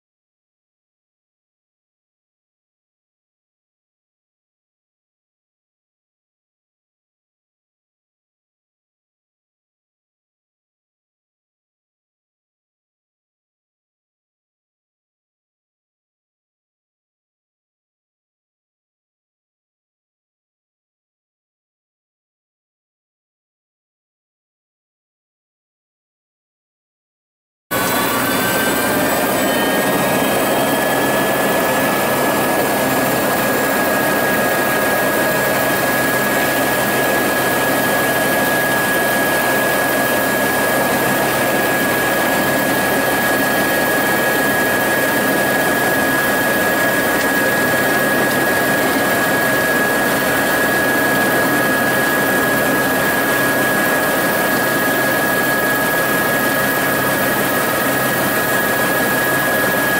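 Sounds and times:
aircraft engine whining drone: 27.7 - 59.9.

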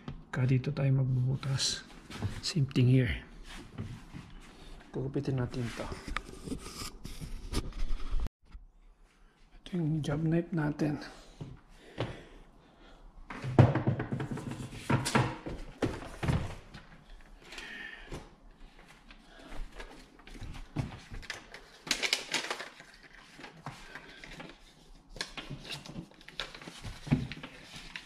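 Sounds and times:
knocks and thumps: 13.3 - 16.7
paper rustling: 18.8 - 28.0.

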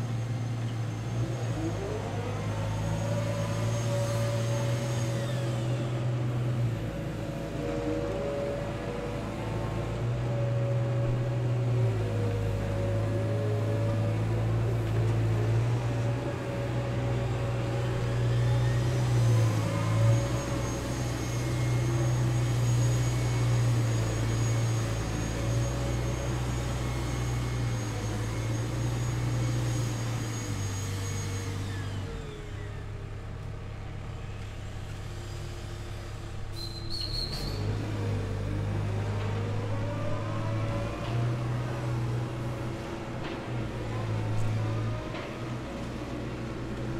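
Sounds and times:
diesel engine running: 0.0 - 46.9
hydraulic whine: 0.0 - 46.9
high squeak: 36.5 - 37.8.

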